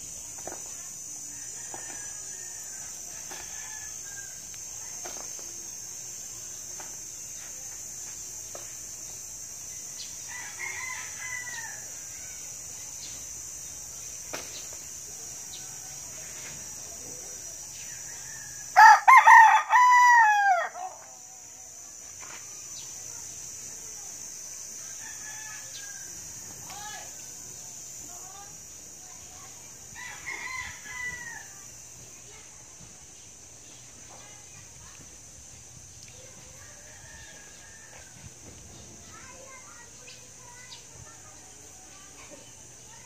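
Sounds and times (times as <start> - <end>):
rooster crowing: 1.3 - 4.5, 10.2 - 12.5, 17.9 - 21.1, 24.8 - 26.6, 30.0 - 31.6, 36.6 - 38.3.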